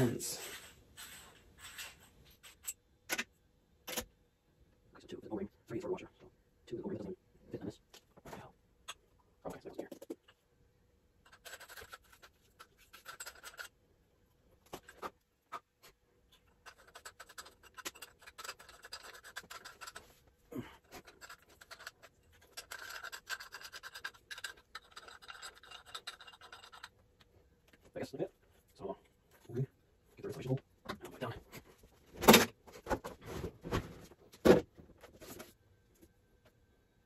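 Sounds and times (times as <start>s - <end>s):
faucet parts scratching and rubbing: 0.4s - 2.8s, 11.2s - 13.8s, 16.4s - 20.2s, 20.8s - 27.0s.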